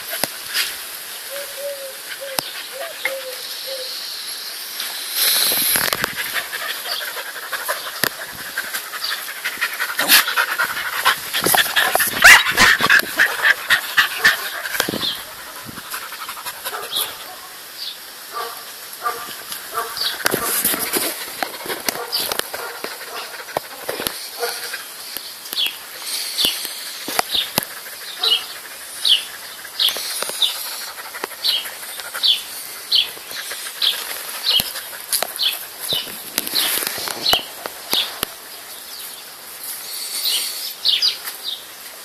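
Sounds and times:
dogs panting: 0:05.8 - 0:17.5, 0:18.4 - 0:25.1, 0:25.9 - 0:38.0.

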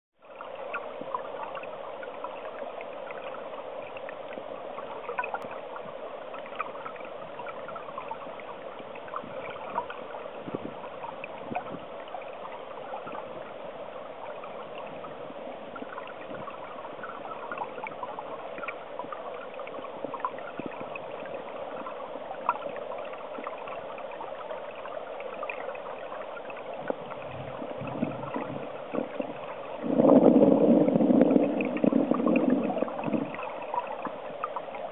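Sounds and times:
small ticks and crackles: 0:00.2 - 0:13.6
stream water heard underwater: 0:00.2 - 0:34.9
low rumble: 0:26.9 - 0:33.7.

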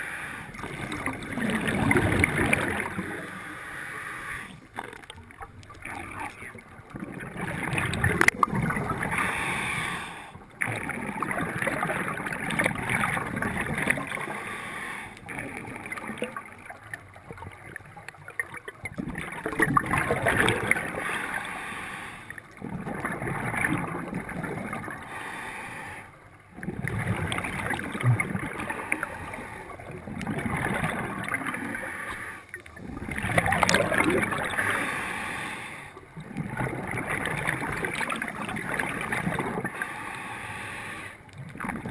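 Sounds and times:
diver breathing through regulator: 0:00.0 - 0:04.8, 0:08.9 - 0:10.4, 0:14.1 - 0:15.3, 0:20.9 - 0:22.4, 0:25.0 - 0:26.2, 0:28.5 - 0:30.0, 0:31.5 - 0:36.0, 0:39.6 - 0:41.2.

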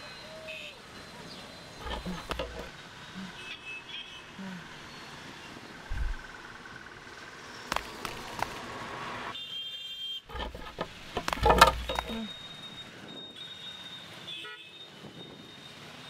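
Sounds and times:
boards clattering: 0:01.8 - 0:02.7, 0:10.3 - 0:12.3
wood knocking on wood: 0:01.8 - 0:02.7, 0:10.3 - 0:12.3
wooden plank thump: 0:01.8 - 0:02.7, 0:10.3 - 0:12.2.

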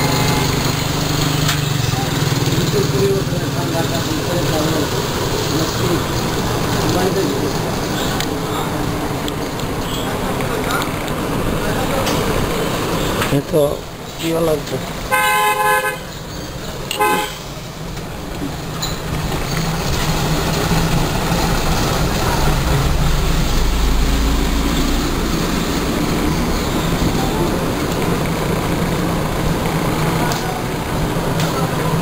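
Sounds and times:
road traffic noise: 0:00.0 - 0:32.0
car horn toot: 0:15.1 - 0:16.1, 0:16.9 - 0:17.5
low engine rumble: 0:16.5 - 0:32.0.

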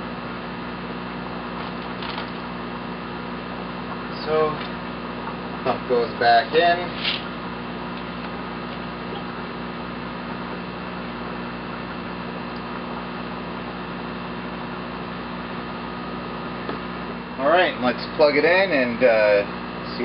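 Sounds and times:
electrical hum: 0:00.0 - 0:20.0
constant hiss: 0:03.9 - 0:09.5.

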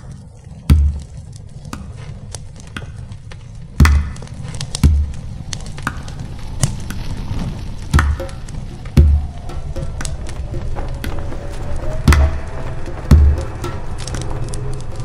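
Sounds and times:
campfire crackling: 0:00.0 - 0:15.0
low rumble: 0:00.0 - 0:15.0
deep booming hits: 0:00.7 - 0:01.2, 0:03.8 - 0:05.3, 0:12.1 - 0:14.2.

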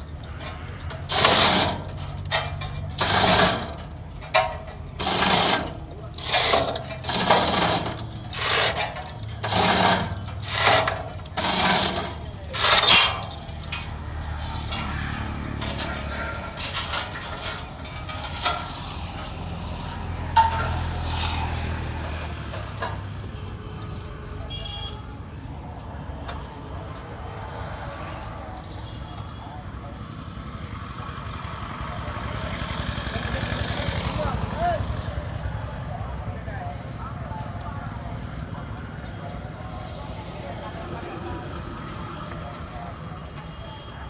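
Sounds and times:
chain hoist rattling: 0:00.1 - 0:23.0.

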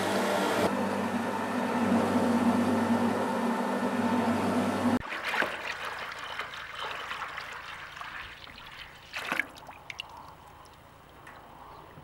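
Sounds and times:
sharp splash: 0:05.0 - 0:10.2
juice pouring into metal tub: 0:05.0 - 0:10.3.

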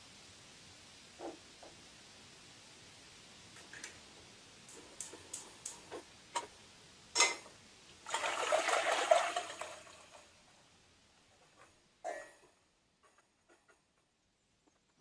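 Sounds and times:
pots clicking on stove: 0:04.7 - 0:06.6, 0:07.2 - 0:07.6
water pouring into pot: 0:08.0 - 0:10.4.

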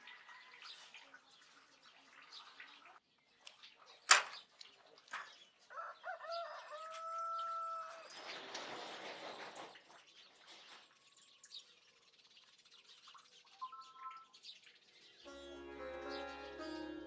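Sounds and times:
rooster crowing: 0:05.7 - 0:08.1
small bird chirps: 0:10.1 - 0:15.3.

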